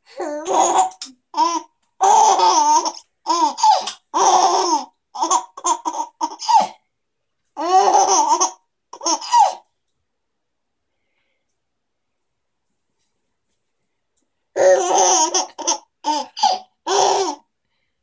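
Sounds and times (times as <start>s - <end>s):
baby laughing: 0.3s - 6.8s, 7.6s - 9.7s, 14.6s - 17.4s.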